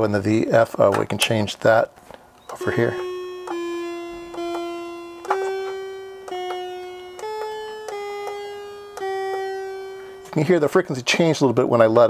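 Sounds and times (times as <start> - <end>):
buzzy synthesizer notes: 2.5 - 10.7.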